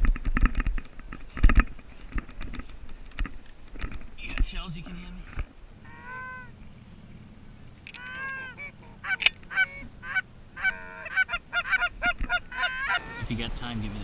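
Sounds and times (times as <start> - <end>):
geese honking and clucking: 5.8 - 6.7, 7.9 - 13.4.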